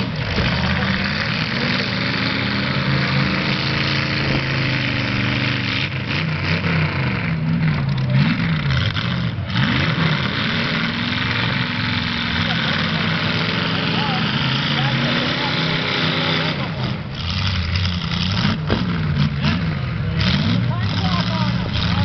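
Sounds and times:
car engines revving: 0.0 - 22.0.

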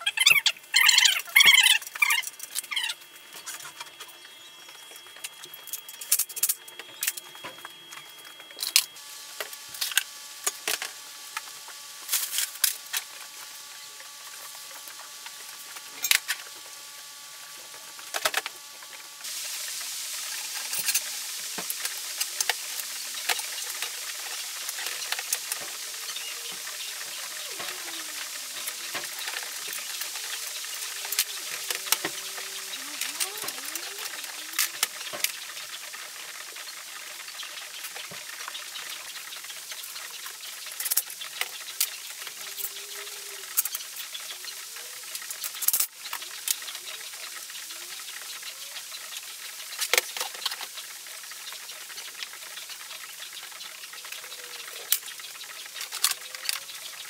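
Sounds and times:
steady hiss: 1.8 - 57.0.

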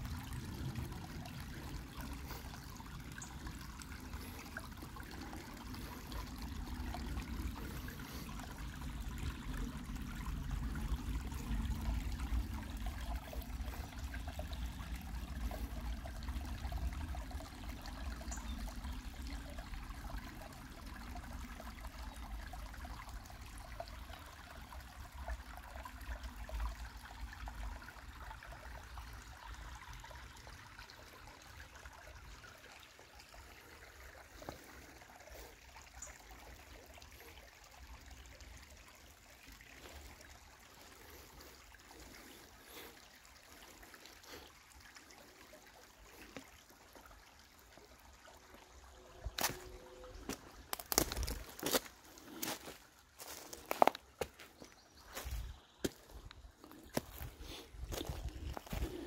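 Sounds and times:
creek babbling over rocks: 0.0 - 59.0
footsteps on stones: 49.4 - 49.6, 50.3 - 56.2, 57.9 - 59.0.

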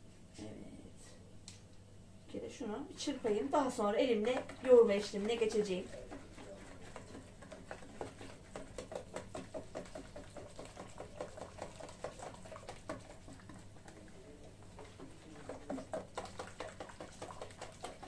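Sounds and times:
whisk beating batter in plastic bowl: 2.9 - 18.0.

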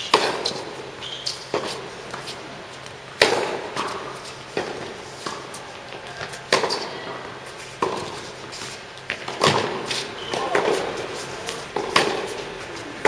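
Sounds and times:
tennis ball bouncing: 0.1 - 0.8, 3.1 - 7.0, 7.7 - 12.9
rackets striking ball: 3.1 - 5.4, 9.0 - 12.4.

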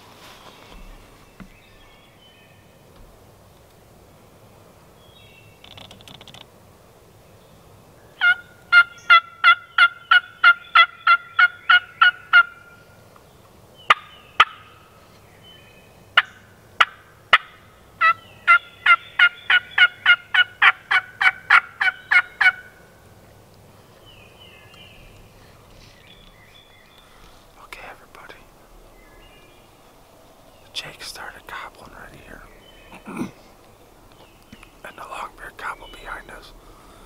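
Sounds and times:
wild turkey yelping: 8.2 - 12.7, 13.9 - 14.8, 16.2 - 22.9.

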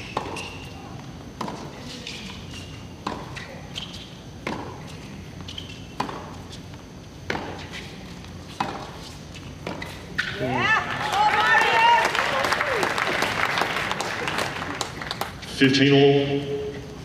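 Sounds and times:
tennis racket hitting ball: 0.0 - 0.7, 1.4 - 4.9, 5.5 - 6.6, 7.2 - 10.3
steady background noise: 0.0 - 17.0.

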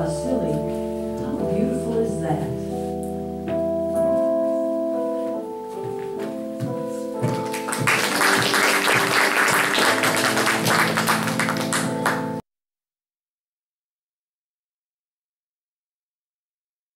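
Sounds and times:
keyboard music with held notes: 0.0 - 12.4
crowd clapping: 7.3 - 12.4.

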